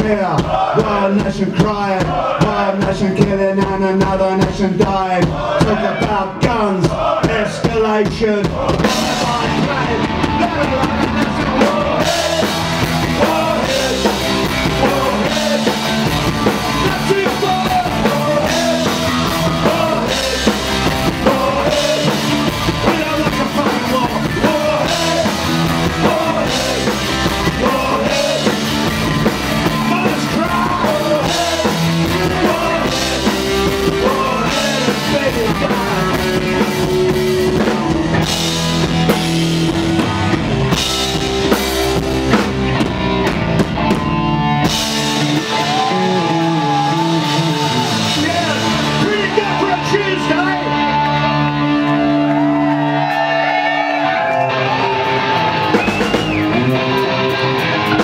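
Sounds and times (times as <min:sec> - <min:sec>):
bass guitar: 0:00.0 - 0:58.0
drum kit: 0:00.0 - 0:58.0
person singing: 0:08.5 - 0:28.9, 0:29.6 - 0:38.3
electric guitar: 0:08.6 - 0:58.0.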